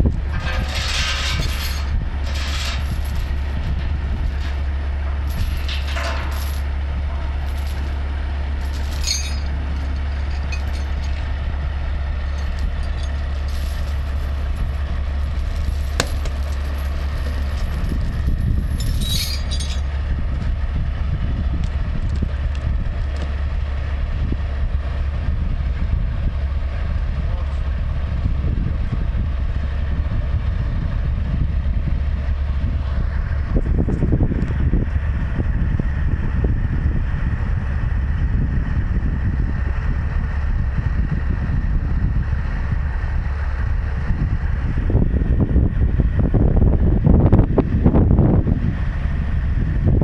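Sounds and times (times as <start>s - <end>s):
diesel engine idling: 0.0s - 50.0s
sharp knocks: 16.0s - 16.4s.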